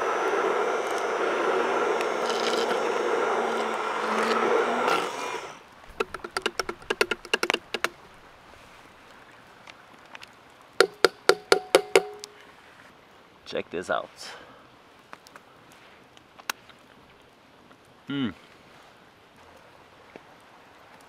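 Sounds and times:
loud steady rushing noise: 0.0s - 4.8s.

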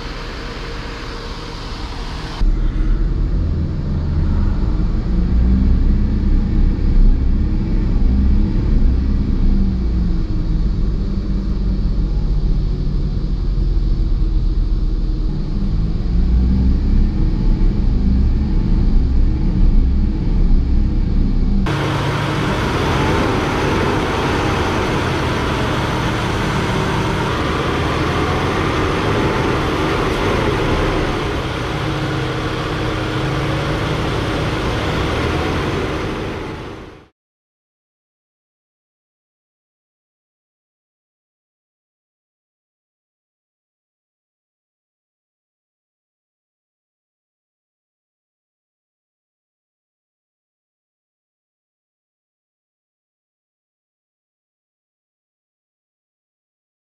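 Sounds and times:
car engine revving: 0.0s - 37.1s
car engine running: 0.0s - 37.1s.

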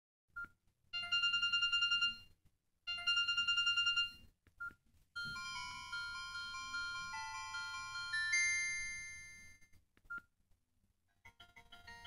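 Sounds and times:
twinkling electronic ringtone: 1.0s - 2.3s, 2.9s - 4.2s, 5.2s - 9.7s, 11.3s - 12.0s
slow chime ringtone: 5.2s - 9.7s.

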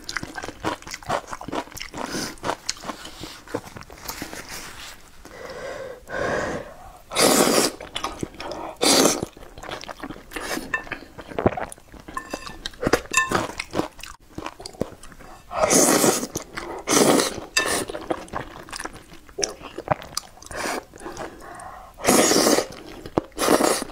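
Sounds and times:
slurping noodles: 7.1s - 9.4s, 15.3s - 18.3s, 19.8s - 23.9s
wet chewing and lip smacks: 18.2s - 21.7s.

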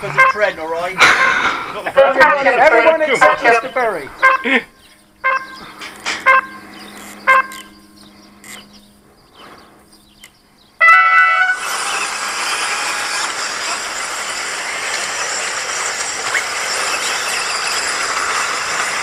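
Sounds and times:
electronic start tone: 5.2s - 8.9s
radio-controlled cars droning: 11.1s - 19.0s.

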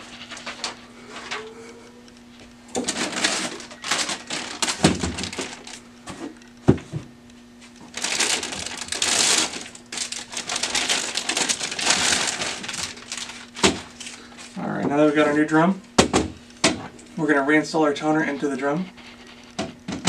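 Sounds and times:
foil bag crinkling: 0.0s - 1.5s, 2.3s - 6.4s, 7.6s - 15.7s.

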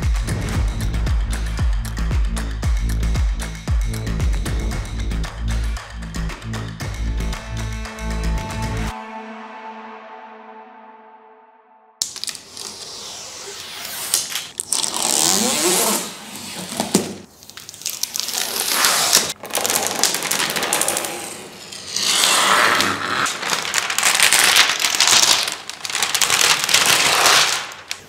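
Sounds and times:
cardboard and packing crinkling: 16.6s - 21.6s, 22.9s - 28.0s.

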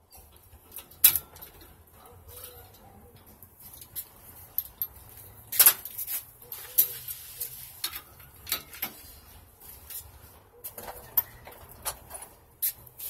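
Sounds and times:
hand tools tapping metal frame: 0.0s - 13.0s.

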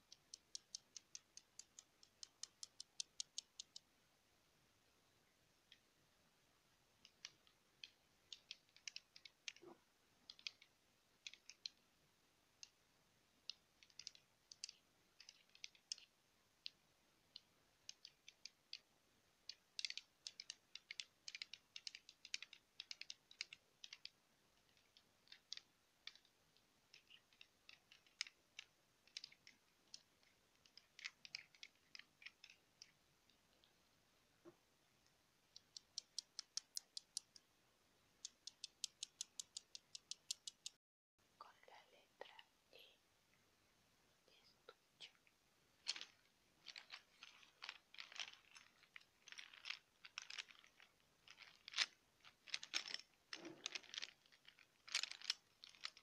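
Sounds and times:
die clicking against fingernails: 0.0s - 3.9s, 7.0s - 11.8s, 13.4s - 33.8s, 35.5s - 37.5s, 38.2s - 40.8s, 45.8s - 56.0s.

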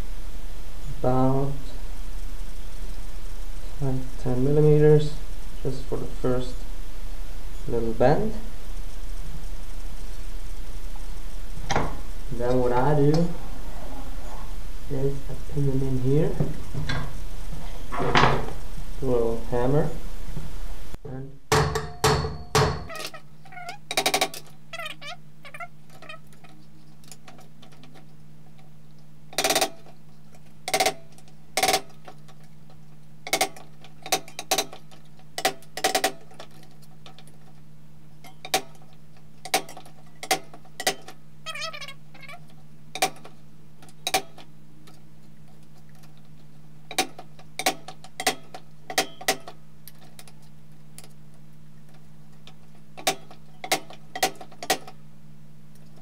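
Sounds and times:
steady low hum: 0.0s - 56.0s
small hammer tapping metal sheet: 21.5s - 23.2s, 46.9s - 49.6s.

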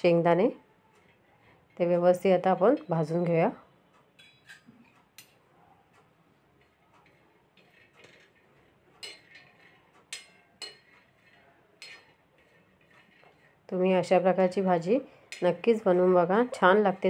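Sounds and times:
spoon scraping a griddle: 1.0s - 3.3s, 6.4s - 16.6s.

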